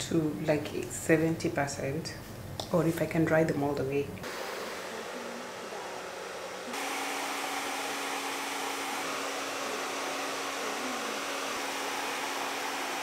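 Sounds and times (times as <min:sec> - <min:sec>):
hair dryer blowing: 0:04.2 - 0:13.0.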